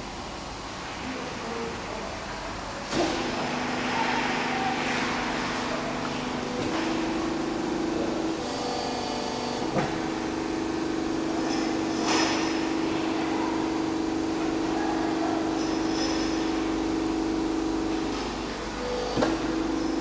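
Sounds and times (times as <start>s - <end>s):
hydraulic press pump whining hum: 0.0s - 20.0s
press clunk: 9.5s - 14.7s.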